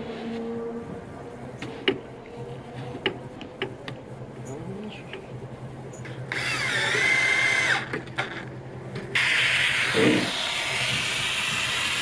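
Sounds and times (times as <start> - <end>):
cordless drill motor whine: 6.3 - 8.4.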